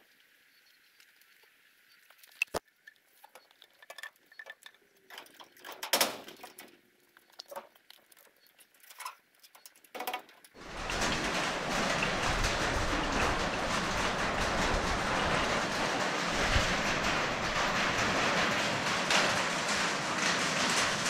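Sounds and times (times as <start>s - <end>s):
loud steady rushing noise: 10.6s - 21.0s.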